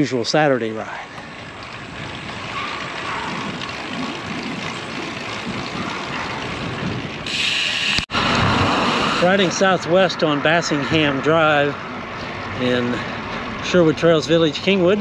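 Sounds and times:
bicycle tyre noise: 0.0s - 15.0s
wind rushing on microphone: 1.3s - 12.6s.

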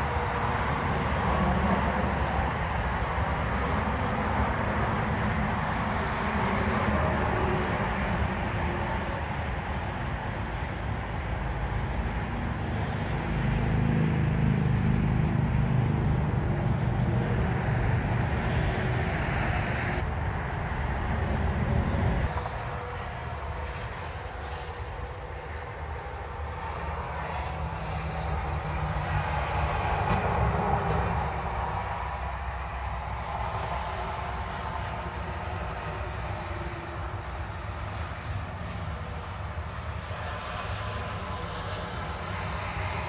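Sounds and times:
low rumbling noise: 0.0s - 43.0s.

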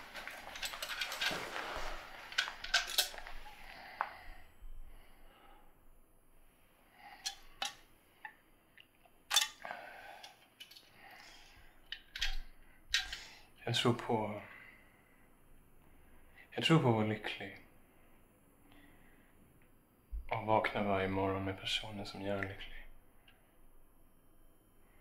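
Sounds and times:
light rustle: 0.0s - 4.2s.

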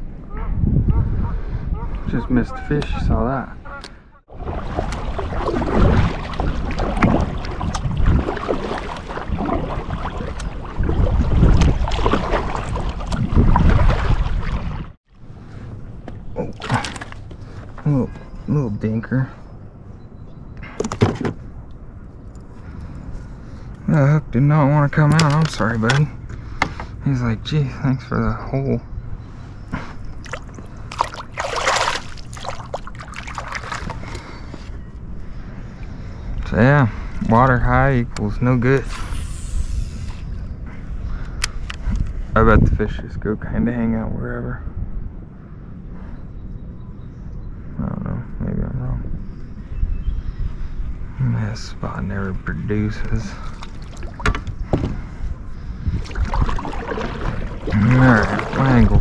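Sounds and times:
wind buffeting microphone: 0.0s - 59.0s
water sloshing around a kayak: 4.3s - 15.0s, 16.4s - 17.9s, 29.8s - 34.8s, 53.4s - 59.0s.

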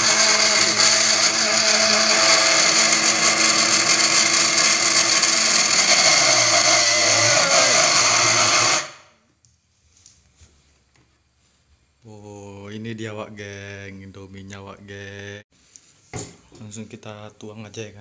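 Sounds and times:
blender running: 0.0s - 9.1s.

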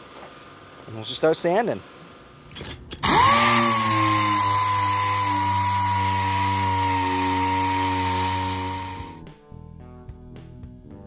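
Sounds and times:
air sander whining: 3.0s - 9.2s.

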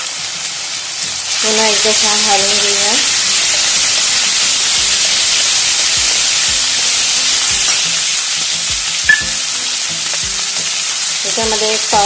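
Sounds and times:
vegetables sizzling in hot oil: 0.0s - 12.0s
sharp metal clink: 9.1s - 9.4s.

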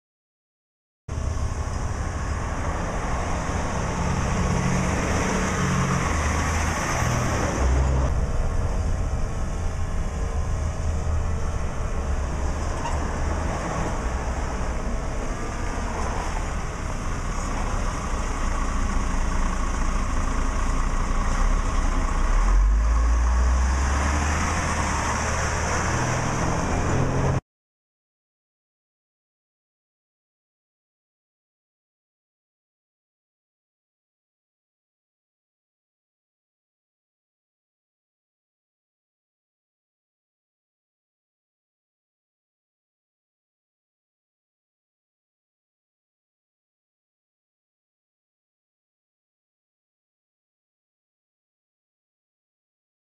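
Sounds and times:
diesel truck engine driving: 1.1s - 27.4s.

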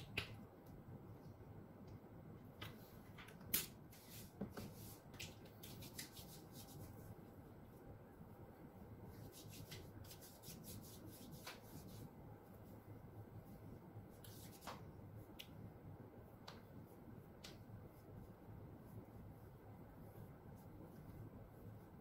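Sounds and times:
hands rubbing lotion on skin: 3.6s - 7.2s, 9.2s - 12.1s, 14.2s - 14.9s.

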